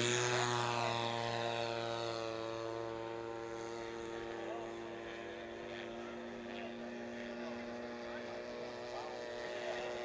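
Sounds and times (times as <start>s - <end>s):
model airplane engine running: 0.0s - 10.0s.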